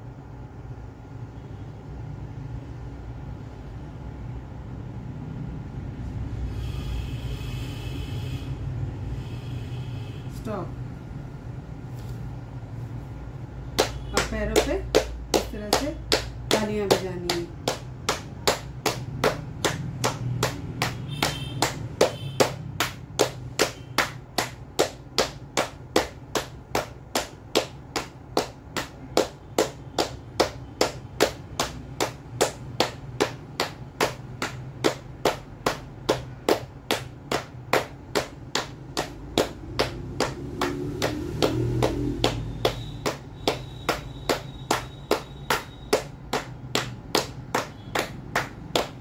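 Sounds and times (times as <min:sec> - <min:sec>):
palms slapping legs: 0:13.6 - 0:49.0.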